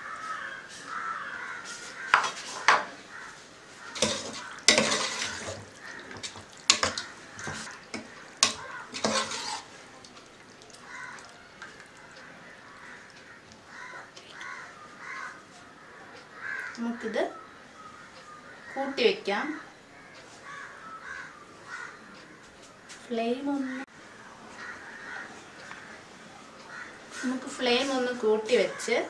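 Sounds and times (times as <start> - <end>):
wet stirring of liquid: 3.8 - 14.6
metal ladle clinking against pot: 4.0 - 9.7.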